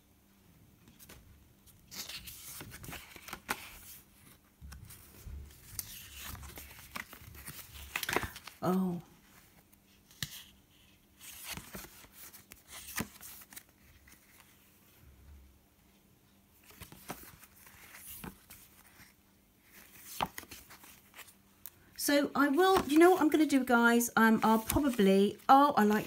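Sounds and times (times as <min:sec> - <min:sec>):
postcards flicking against card: 0:05.7 - 0:08.6.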